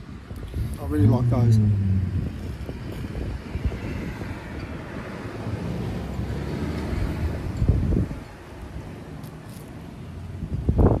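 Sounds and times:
low rumble and hiss: 0:00.4 - 0:03.3.

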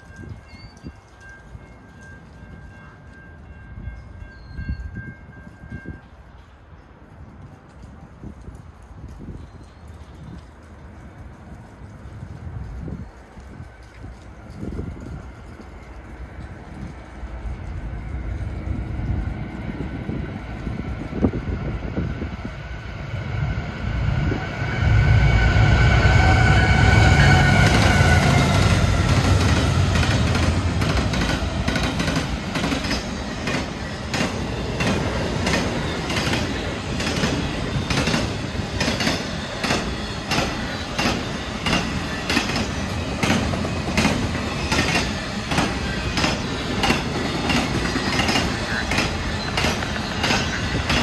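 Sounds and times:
diesel locomotive rumble: 0:14.7 - 0:51.0
high whine: 0:22.8 - 0:30.8
train wheels clacking over rail joints: 0:27.2 - 0:51.0.

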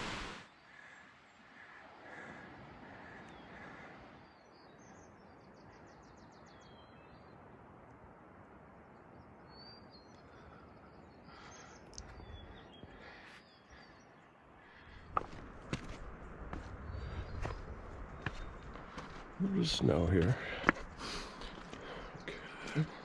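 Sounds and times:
mountain stream rushing: 0:00.0 - 0:00.5
small birds calling: 0:00.5 - 0:07.5, 0:09.1 - 0:23.0.

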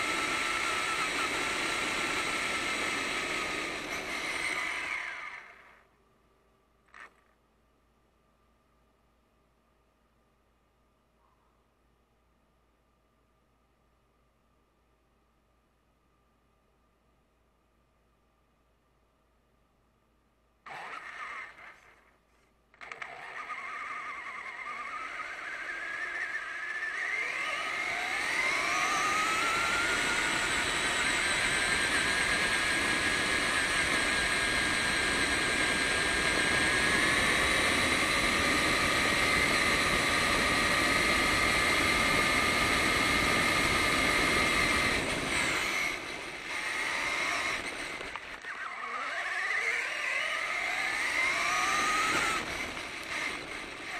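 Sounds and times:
rc truck motor whining: 0:00.0 - 0:06.0, 0:06.8 - 0:07.4, 0:20.6 - 0:53.9.

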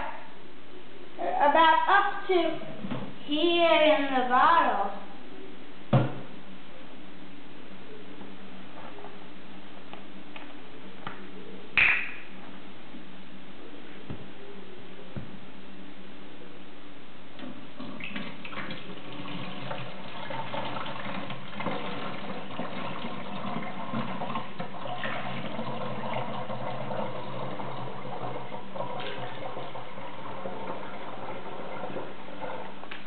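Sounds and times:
juice pouring through a funnel: 0:17.8 - 0:33.0.

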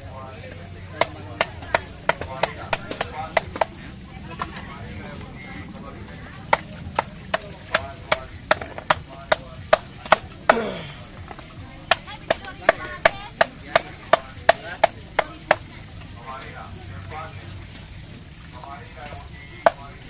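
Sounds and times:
wooden club striking knocks: 0:00.9 - 0:03.8, 0:06.4 - 0:15.7, 0:19.6 - 0:20.0.

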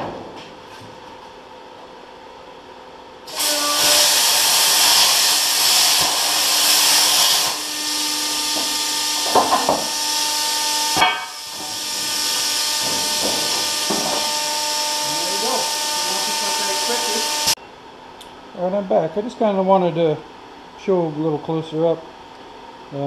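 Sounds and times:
steady whine: 0:00.0 - 0:22.0
plasma cutter hissing: 0:03.3 - 0:17.6.

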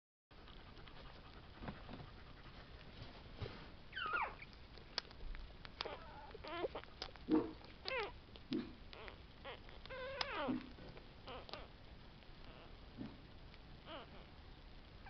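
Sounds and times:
puppies squeaking and whimpering: 0:03.9 - 0:04.6, 0:05.8 - 0:08.2, 0:08.9 - 0:11.7
puppies grunting: 0:05.8 - 0:11.7.

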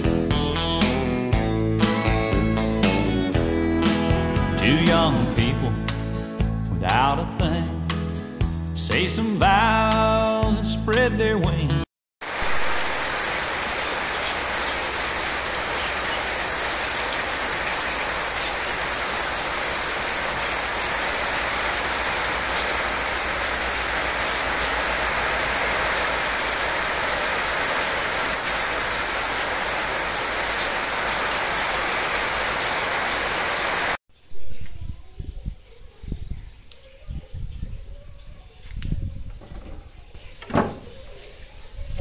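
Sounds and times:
heavy rain pouring: 0:12.2 - 0:34.0.

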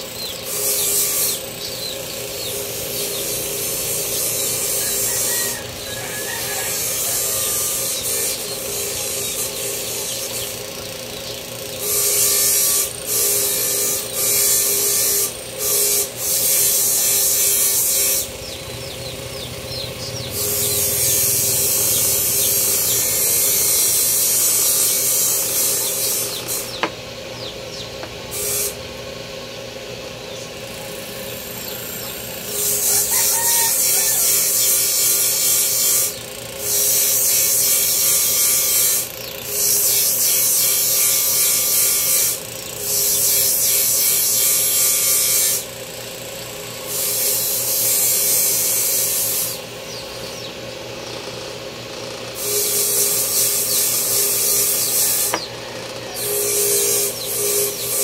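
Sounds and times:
wood being sanded: 0:00.4 - 0:11.0, 0:11.8 - 0:18.5, 0:20.4 - 0:27.0, 0:52.4 - 0:58.0.

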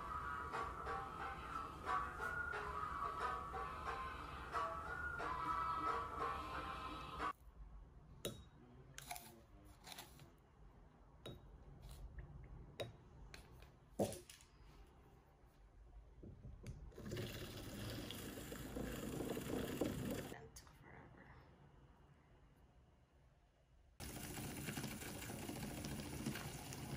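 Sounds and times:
liquid pouring: 0:16.9 - 0:20.4, 0:24.0 - 0:26.9
milk frother whirring: 0:17.0 - 0:20.4, 0:24.0 - 0:26.9.

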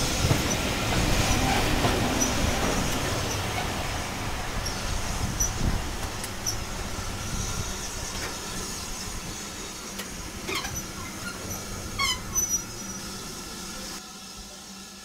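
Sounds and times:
railway carriages rumbling past: 0:00.0 - 0:14.9
wheels squeaking: 0:09.9 - 0:13.3.

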